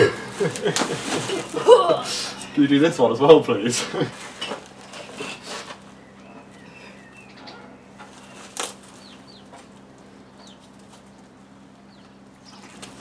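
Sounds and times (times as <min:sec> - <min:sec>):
small birds chirping: 0:04.6 - 0:13.0.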